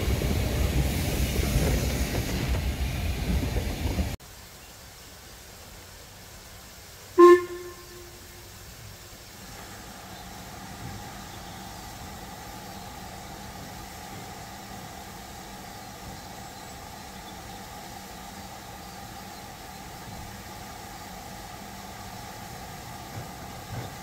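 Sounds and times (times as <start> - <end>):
train horn toot: 7.2 - 8.6.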